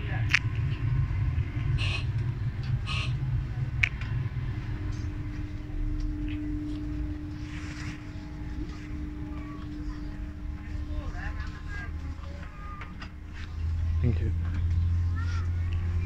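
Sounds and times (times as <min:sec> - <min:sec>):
train carriage rumble: 0:00.0 - 0:16.0
train hum: 0:00.0 - 0:16.0.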